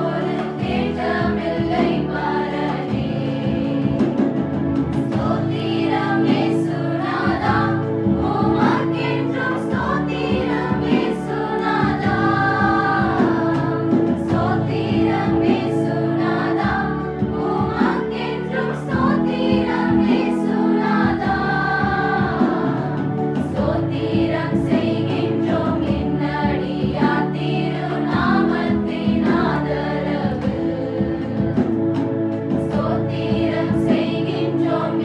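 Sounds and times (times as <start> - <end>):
women's choir singing: 0.0 - 35.0.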